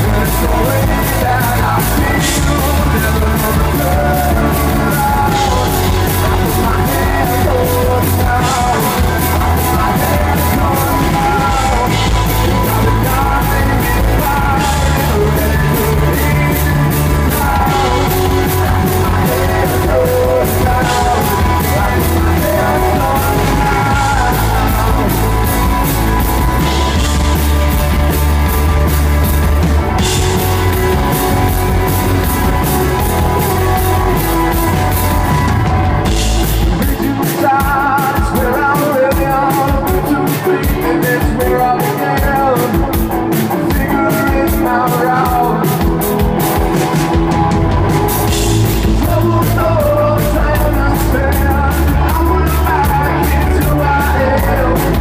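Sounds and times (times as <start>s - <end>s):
bass guitar: 0.0s - 55.0s
drum kit: 0.0s - 55.0s
electric guitars: 0.0s - 55.0s
person singing: 0.0s - 55.0s.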